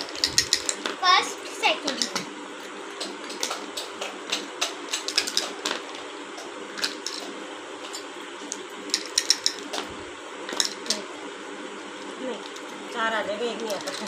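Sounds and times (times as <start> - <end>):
plastic tokens clicking on board: 1.9 - 2.3, 4.6 - 5.8, 13.6 - 14.0.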